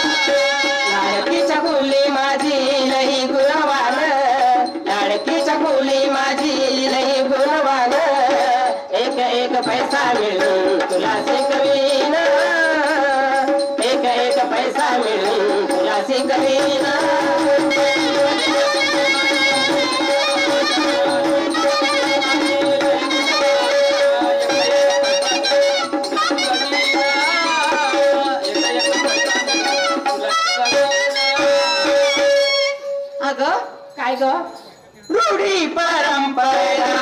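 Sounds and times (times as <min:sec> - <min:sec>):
voices singing: 0:00.0 - 0:32.9, 0:34.7 - 0:37.0
barrel drum: 0:00.0 - 0:33.0
frame drum: 0:09.5 - 0:32.7.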